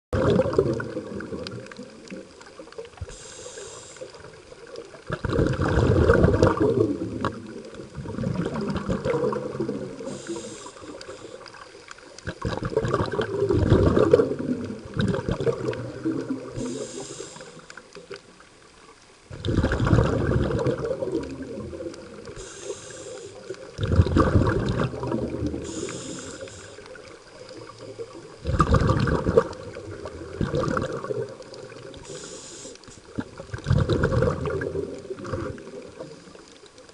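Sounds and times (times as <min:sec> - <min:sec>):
exhaust bubbles rumbling: 0:00.1 - 0:02.3, 0:05.0 - 0:10.3, 0:12.2 - 0:16.6, 0:19.3 - 0:22.4, 0:23.7 - 0:25.8, 0:28.2 - 0:32.0, 0:33.1 - 0:36.0
regulator inhale hiss: 0:03.0 - 0:04.4, 0:09.9 - 0:11.8, 0:16.5 - 0:17.9, 0:22.2 - 0:23.7, 0:25.5 - 0:28.3, 0:31.9 - 0:33.2.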